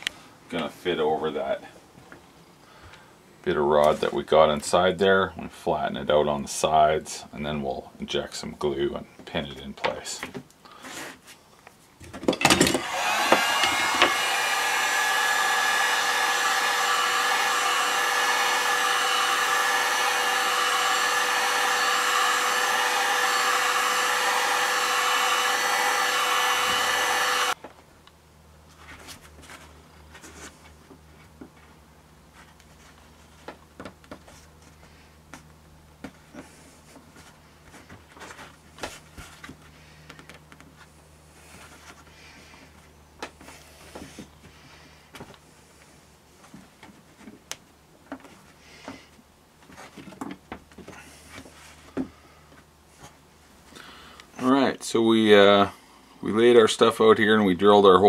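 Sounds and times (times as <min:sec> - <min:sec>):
heat gun fan whining: 0:12.3 - 0:28.2.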